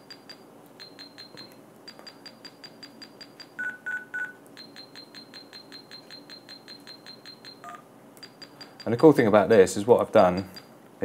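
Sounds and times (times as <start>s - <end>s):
louder lower beeps: 3.0s - 8.8s.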